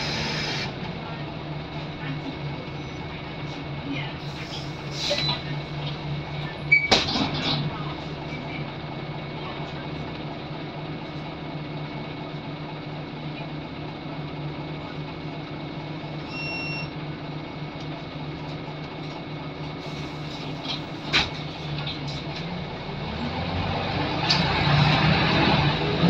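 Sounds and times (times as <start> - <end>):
bus engine whirring hum: 0.0 - 26.0
short electronic beep: 16.3 - 16.9.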